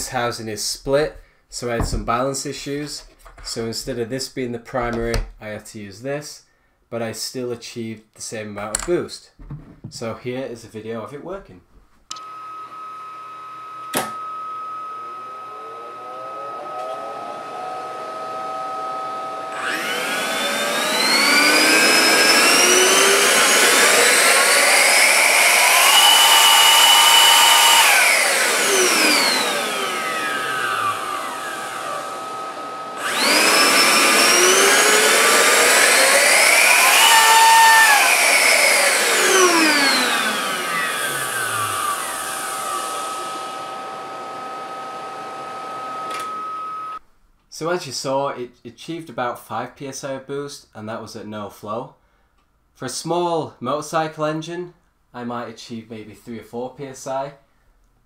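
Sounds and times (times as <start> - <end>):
electric motor whining: 12.2 - 47.0.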